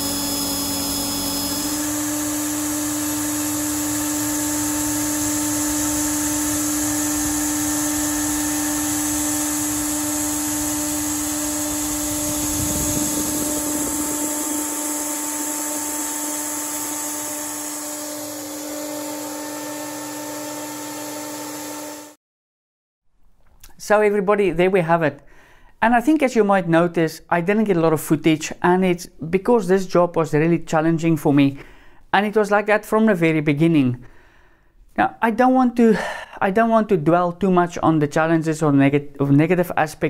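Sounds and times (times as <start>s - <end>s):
router spindle milling metal: 0.0s - 22.1s.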